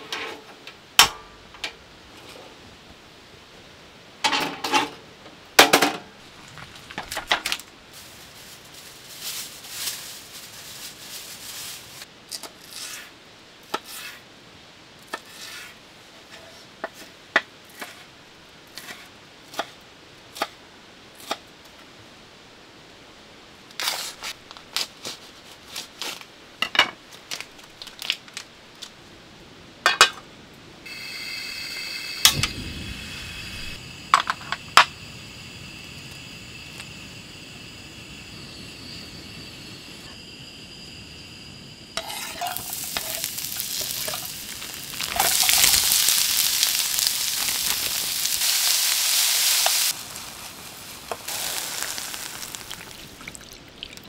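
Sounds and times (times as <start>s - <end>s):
faint high whine: 30.5s - 53.5s
gas burner hissing: 30.8s - 53.4s.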